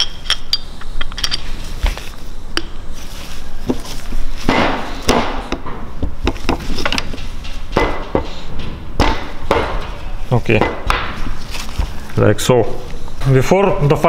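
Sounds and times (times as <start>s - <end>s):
metal parts clicking and knocking: 0.0s - 2.0s.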